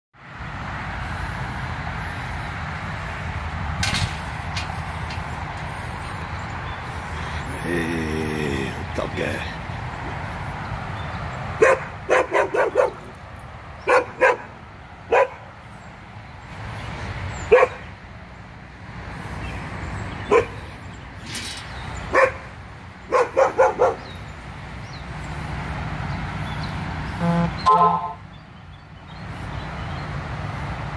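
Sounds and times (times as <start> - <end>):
dog barking: 11.6 - 13.1, 13.8 - 14.5, 15.1 - 15.4, 17.5 - 17.8, 20.3 - 20.6, 22.1 - 22.5, 23.1 - 24.1.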